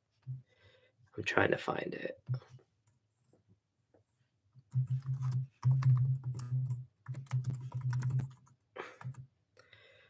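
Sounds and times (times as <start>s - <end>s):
keyboard typing: 4.7s - 9.2s.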